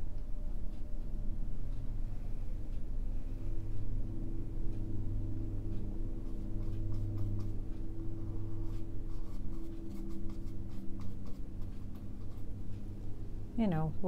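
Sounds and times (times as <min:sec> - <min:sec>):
steady low hum: 0:00.0 - 0:14.0
brush strokes on canvas: 0:06.2 - 0:12.5.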